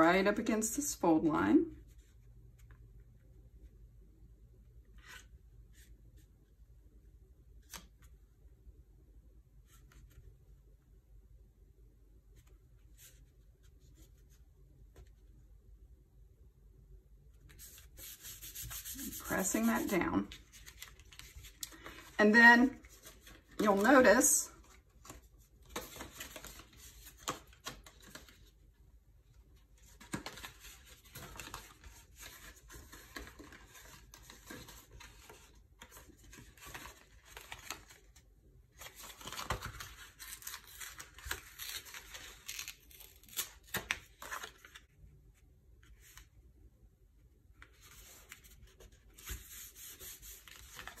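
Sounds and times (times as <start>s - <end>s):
paper rustling and crackling: 17.5s - 23.9s, 24.5s - 28.6s, 29.8s - 45.0s, 47.6s - 51.0s.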